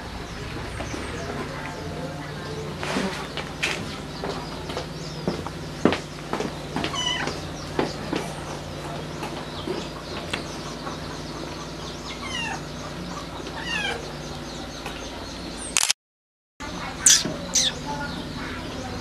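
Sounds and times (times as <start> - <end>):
cat mewing: 17.0 - 17.8.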